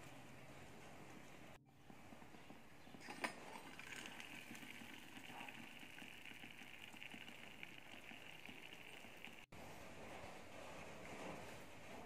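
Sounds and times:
pot of water simmering: 1.8s - 9.5s.

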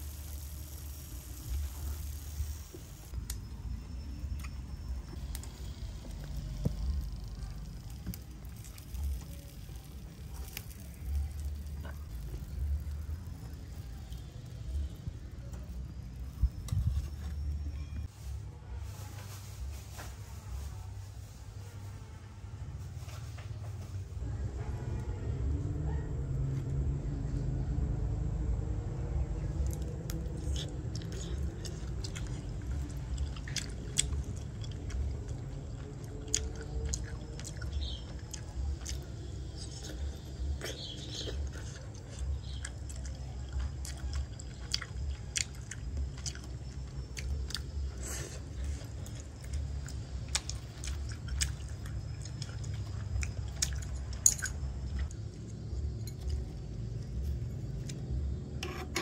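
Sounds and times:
person chewing food: 29.6s - 57.1s.

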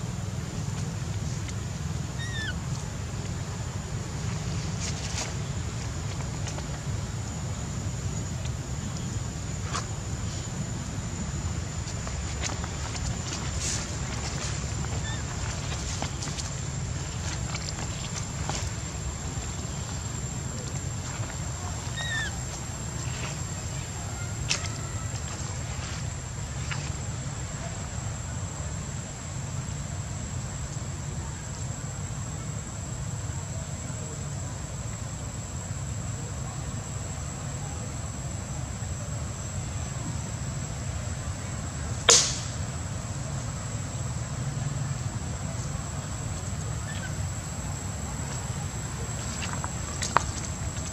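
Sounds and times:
faint high-pitched whine: 0.0s - 50.9s
steady background noise: 0.0s - 50.9s
sharp snap-like impact: 42.1s - 42.6s.

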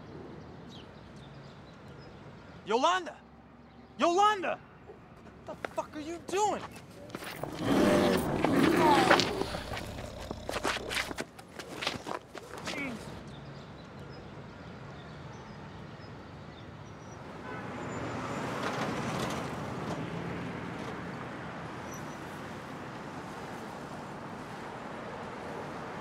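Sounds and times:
city street traffic: 0.0s - 26.0s
car passing: 6.9s - 11.2s.

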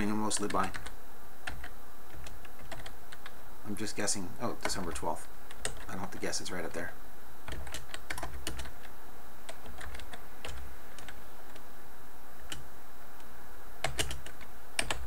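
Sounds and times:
computer keyboard typing: 0.0s - 3.3s, 4.6s - 5.9s, 7.4s - 8.9s, 9.5s - 11.6s, 13.8s - 15.0s.

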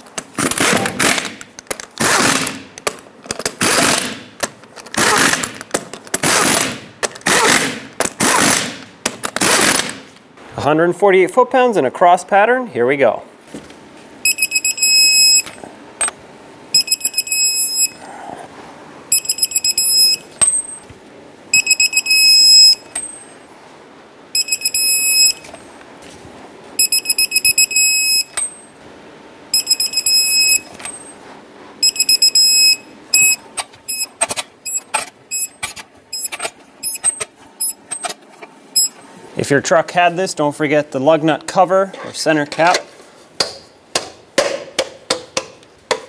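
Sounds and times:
torque wrench beeping: 14.2s - 16.1s, 16.7s - 18.0s, 19.1s - 20.8s, 21.5s - 23.4s, 24.4s - 25.6s, 26.8s - 28.6s, 29.5s - 31.2s, 31.8s - 38.1s, 38.7s - 39.0s.

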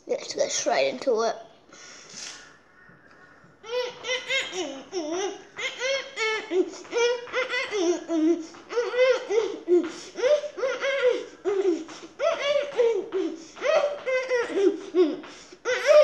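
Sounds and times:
child laughing: 3.7s - 16.0s.

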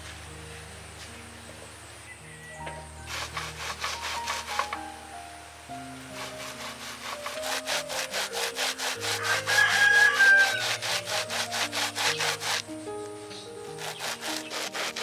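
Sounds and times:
corn rasping on metal grater: 3.1s - 4.8s, 6.1s - 12.7s, 13.7s - 15.0s.

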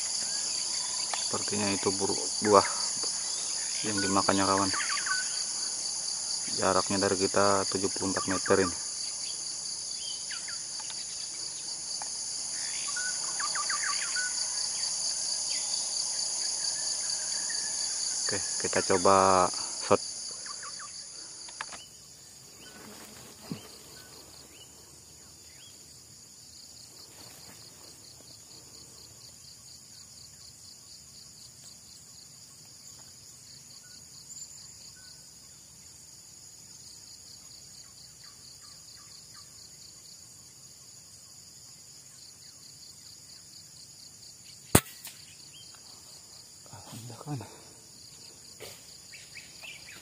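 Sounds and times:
cicadas and crickets chirring: 0.0s - 50.0s
faint ticks: 21.4s - 21.8s
air rifle shot: 44.7s - 45.3s.

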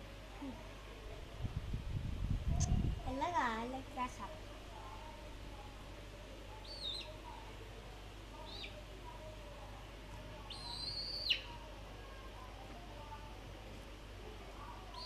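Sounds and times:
chick peeping: 6.6s - 7.2s, 8.4s - 8.8s, 10.5s - 11.6s.

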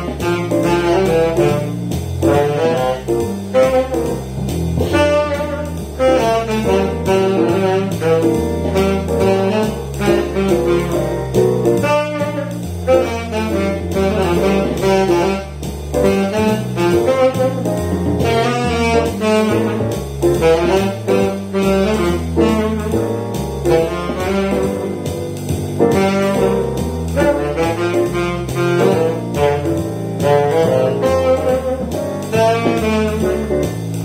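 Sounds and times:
tenor saxophone jazz melody: 0.0s - 34.0s
walking bass line: 0.0s - 34.0s.

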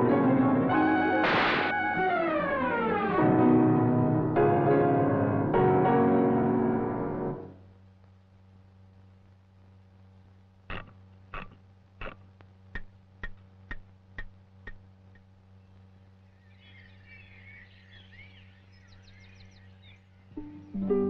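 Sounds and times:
metronome ticking: 10.7s - 14.8s
high twittering chirps: 15.5s - 21.0s.

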